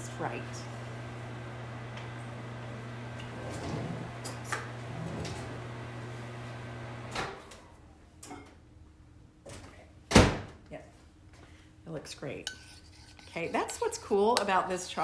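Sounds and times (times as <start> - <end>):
microwave oven humming: 0.1 - 8.6.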